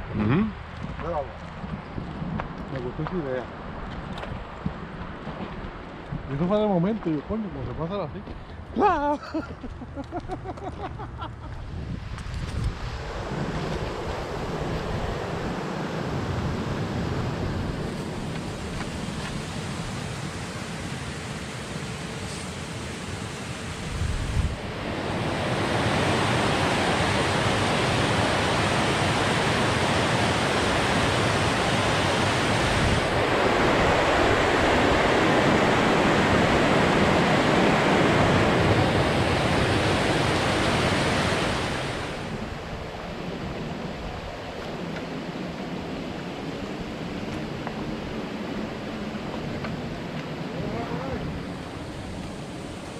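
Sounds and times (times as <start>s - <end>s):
river water rushing over weir: 13.0s - 52.9s.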